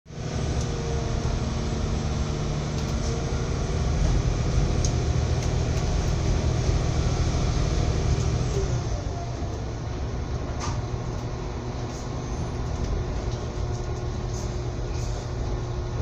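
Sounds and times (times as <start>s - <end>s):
train wheels rumbling on rails: 0.1s - 16.0s.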